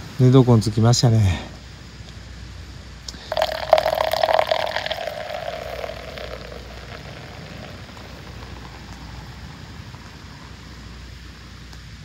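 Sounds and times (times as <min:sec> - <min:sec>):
beer pouring into a metal mug: 0:03.2 - 0:10.8.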